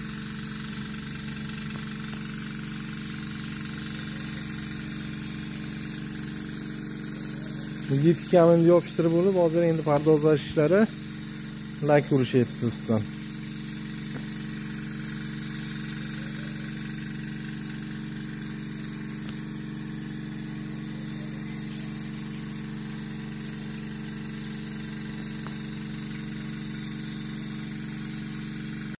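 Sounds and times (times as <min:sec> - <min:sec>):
air compressor humming: 0:00.0 - 0:29.0
paint spray gun hissing: 0:00.0 - 0:29.0.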